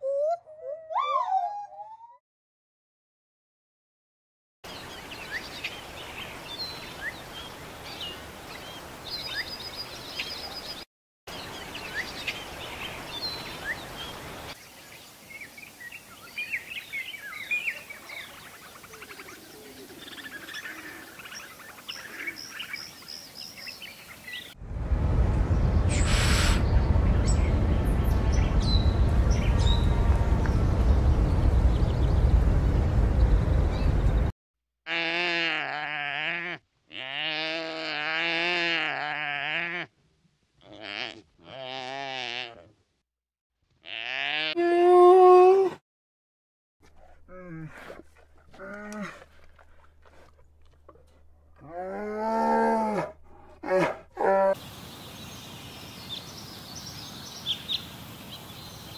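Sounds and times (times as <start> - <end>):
loud low rumbling: 24.6 - 34.3
small birds chirping: 54.6 - 58.9.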